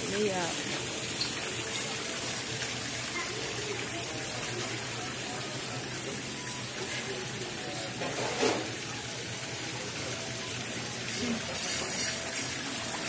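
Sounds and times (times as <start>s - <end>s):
faint chatter of voices: 1.8s - 12.8s.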